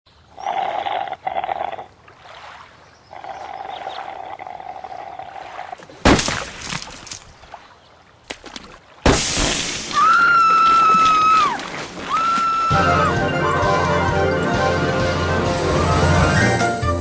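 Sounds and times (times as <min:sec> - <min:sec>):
slurping through a drinking straw: 0:00.4 - 0:01.9, 0:03.2 - 0:05.8
loud splat: 0:06.0 - 0:07.2, 0:08.3 - 0:12.1.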